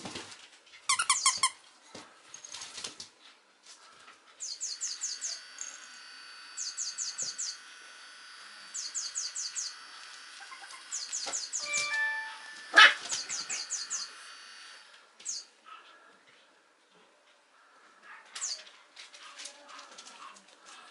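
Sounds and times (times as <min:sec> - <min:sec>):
squeaky toy squeezed: 0:00.9 - 0:01.6
high chirps in music: 0:10.6 - 0:14.2
quiet background music: 0:11.6 - 0:13.1.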